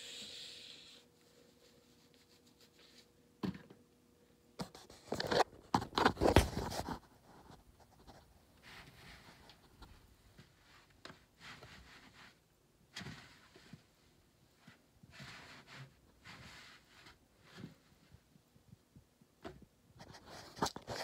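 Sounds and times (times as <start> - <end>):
rustling and scraping handling: 4.6 - 18.4, 19.5 - 21.0.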